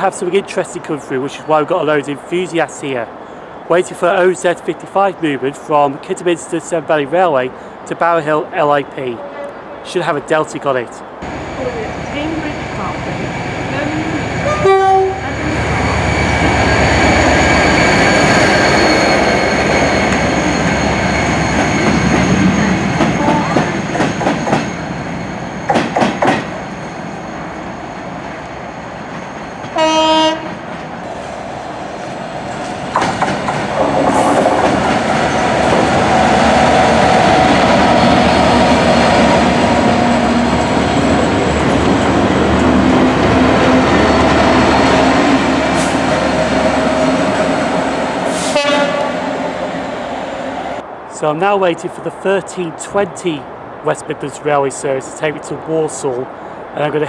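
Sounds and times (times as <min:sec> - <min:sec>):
diesel locomotive passing: 0:00.0 - 0:57.0
freight train passing: 0:00.0 - 0:57.0
train horn: 0:13.8 - 0:16.0, 0:29.7 - 0:30.6, 0:48.3 - 0:49.6
train wheels clicking: 0:17.7 - 0:24.8, 0:25.7 - 0:26.6, 0:32.6 - 0:36.2.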